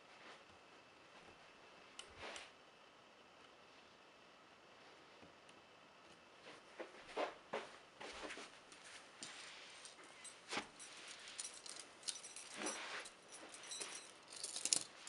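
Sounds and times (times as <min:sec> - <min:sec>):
chain and handcuffs clinking: 0:09.8 - 0:15.0.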